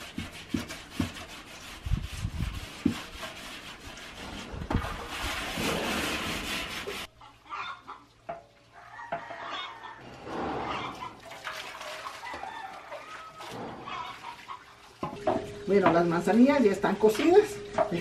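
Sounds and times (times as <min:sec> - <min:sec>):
salt scrubbing against copper: 0:00.0 - 0:07.2.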